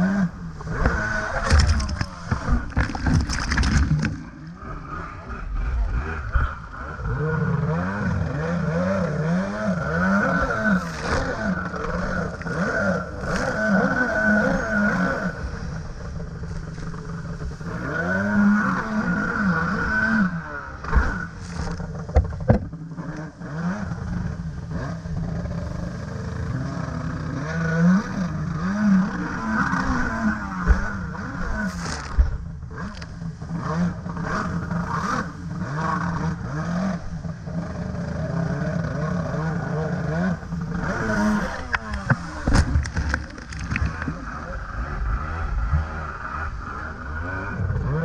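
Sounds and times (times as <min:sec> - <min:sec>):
jet ski engine revving: 0:00.0 - 0:48.0
hull slapping water: 0:00.6 - 0:04.6, 0:40.6 - 0:44.3.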